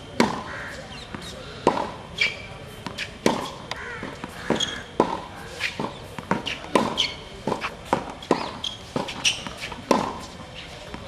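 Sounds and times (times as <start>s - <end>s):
shoes scuffing and squeaking: 2.1s - 11.0s
tennis ball pops off racket: 2.8s - 11.0s.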